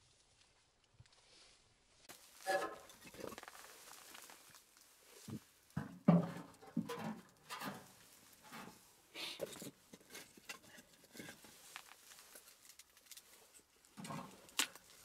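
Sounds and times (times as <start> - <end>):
firewood knocking in metal stove: 5.8 - 7.9.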